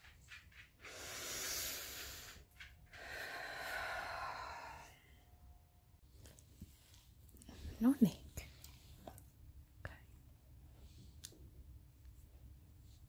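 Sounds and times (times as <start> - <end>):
woman breathing heavily: 0.8 - 5.5.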